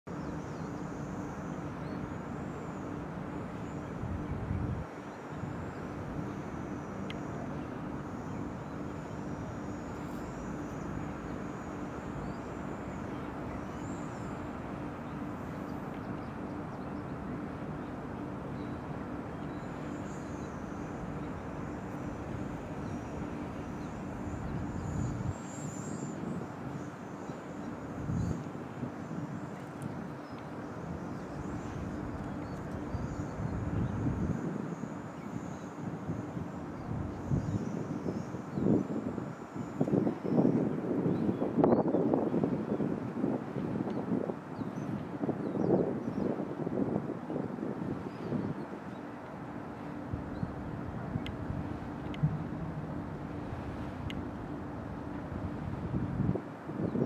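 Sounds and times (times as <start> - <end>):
low hum: 49.8 - 55.9
outdoor background rumble: 50.1 - 56.3.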